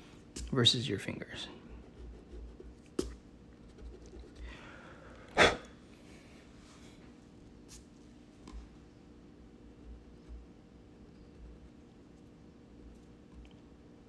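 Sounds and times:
person sneezing: 5.3s - 5.7s.

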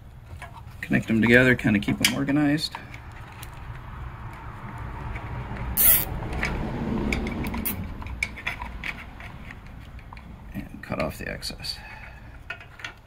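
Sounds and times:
zip tie zipping rasp: 5.8s - 6.1s.

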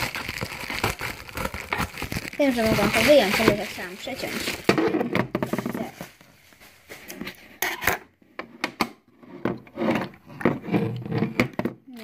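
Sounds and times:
cardboard packaging rubbing: 0.0s - 4.9s.

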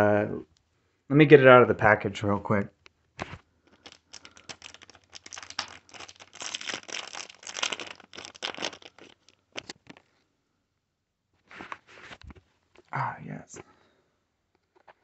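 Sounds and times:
plastic zip bag crinkling: 3.2s - 10.2s.

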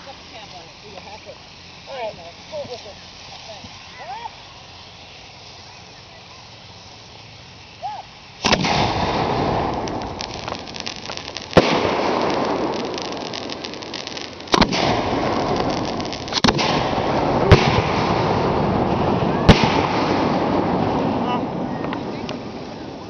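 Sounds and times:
fireworks hiss and crackle: 0.0s - 23.0s
fireworks booms: 8.4s - 23.0s.

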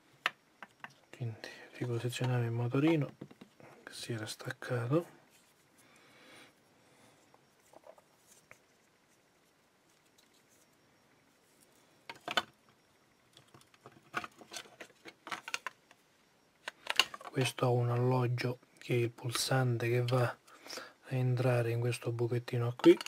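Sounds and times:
small clicks and knocks: 0.2s - 1.1s, 1.8s - 3.6s, 12.0s - 16.0s, 16.6s - 17.6s, 22.8s - 23.0s
faint rustling: 1.0s - 15.6s
plastic parts clicking: 13.4s - 15.8s, 16.6s - 17.5s.

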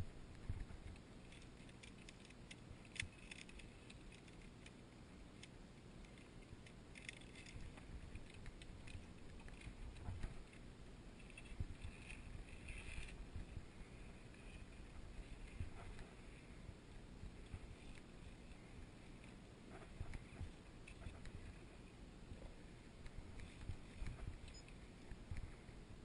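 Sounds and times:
low steady rumble: 0.0s - 26.0s
carabiners clicking on steel cable: 0.9s - 4.8s, 5.4s - 10.6s.

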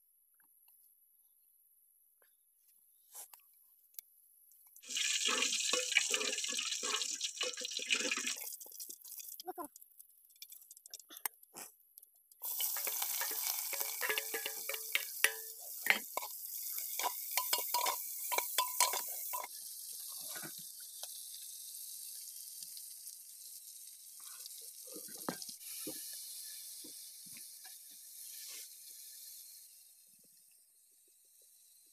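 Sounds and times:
food sizzling in a pot: 4.8s - 11.7s, 12.3s - 31.9s
metal ladle scraping a pot: 12.4s - 19.5s.

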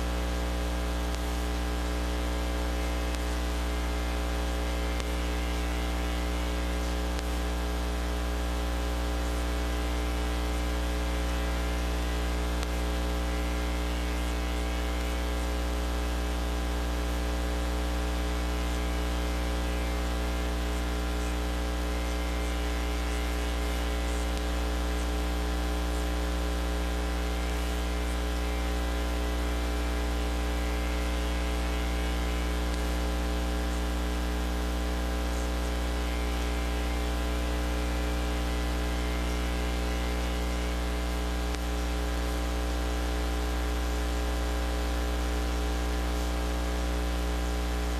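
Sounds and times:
electrical mains hum: 0.0s - 47.9s
static hiss: 0.0s - 47.9s.

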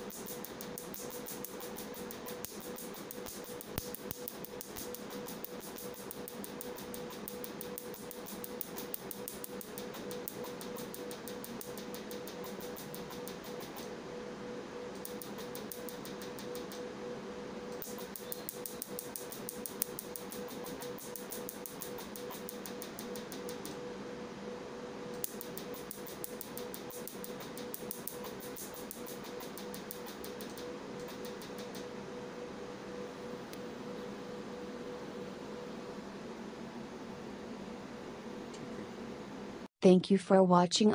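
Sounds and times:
laser firing sharp clicks: 0.0s - 13.9s, 15.0s - 16.8s, 17.7s - 23.8s, 25.2s - 31.9s
steady hum: 0.0s - 39.7s.

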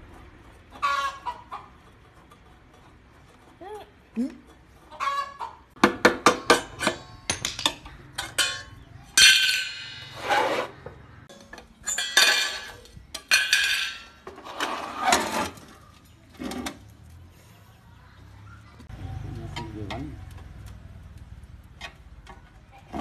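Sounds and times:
metal stove parts clanking: 6.4s - 15.7s.

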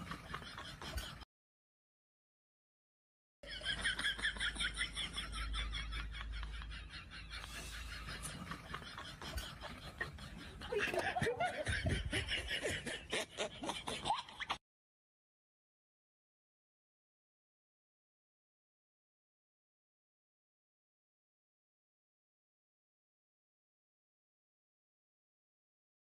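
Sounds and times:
loud laughter: 0.0s - 1.2s, 3.4s - 14.6s
high-pitched giggling: 7.1s - 14.6s.

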